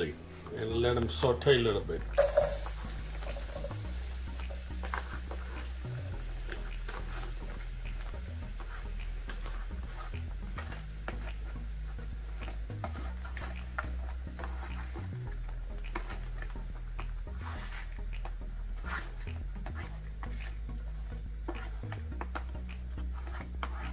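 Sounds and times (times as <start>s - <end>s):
steady low hum: 1.7s - 23.9s
onion and seeds frying in oil: 2.2s - 19.7s.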